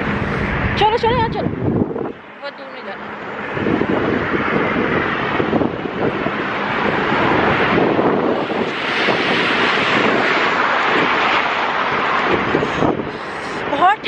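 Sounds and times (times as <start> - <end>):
highway traffic rushing past: 0.0 - 14.0
wind buffeting microphone: 0.0 - 14.0.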